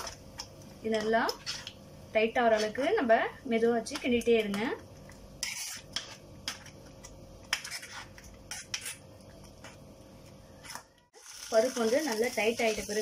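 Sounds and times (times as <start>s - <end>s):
spoon scraping metal pan: 5.4s - 6.8s, 7.5s - 9.0s.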